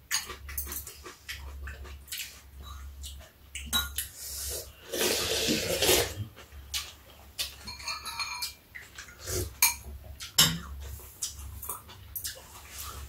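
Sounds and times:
loud slurp: 0:04.4 - 0:06.2
utensils clicking on ceramic bowls: 0:07.4 - 0:08.6.

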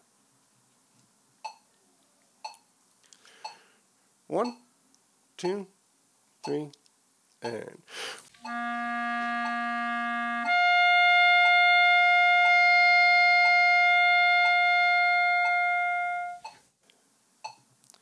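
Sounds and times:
metronome ticking: 0:04.4 - 0:04.7, 0:05.4 - 0:05.6, 0:06.4 - 0:06.8, 0:08.4 - 0:11.6, 0:16.4 - 0:16.6, 0:17.4 - 0:17.6
clarinet notes: 0:08.4 - 0:16.6.

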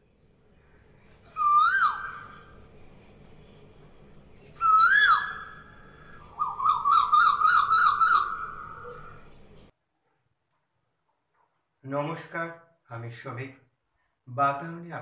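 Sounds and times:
whistled bird-like calls: 0:01.2 - 0:02.6, 0:04.4 - 0:09.4.

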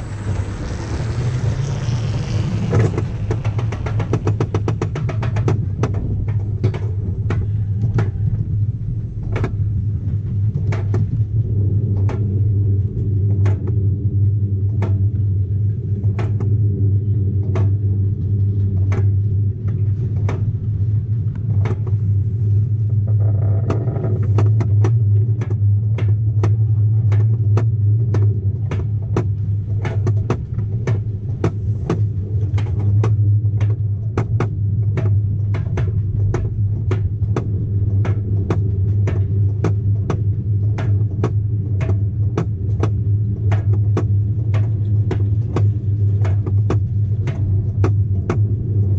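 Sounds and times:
sharp clacks: 0:00.0 - 0:08.4
sled wheels rumbling on rail: 0:00.0 - 0:48.9.

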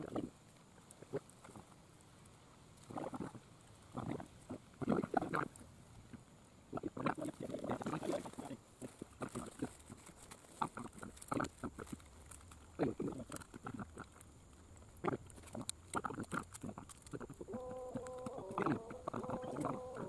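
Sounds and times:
small clicks and rustles: 0:00.0 - 0:20.0
chewing and lip-smacking: 0:06.7 - 0:20.0.

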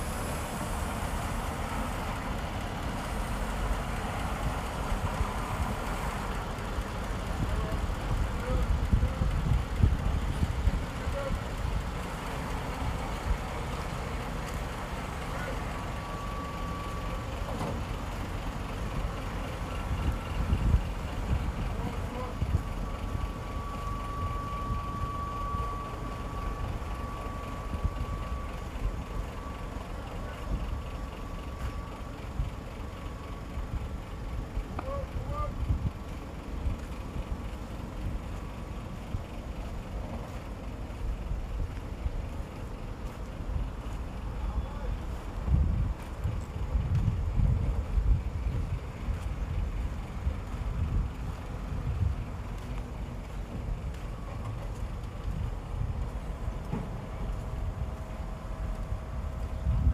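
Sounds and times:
diesel engine rumbling: 0:00.0 - 0:59.9.

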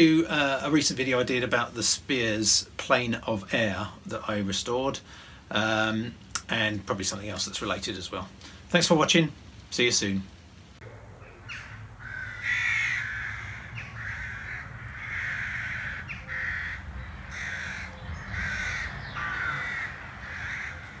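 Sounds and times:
crow cawing: 0:11.4 - 0:21.0.

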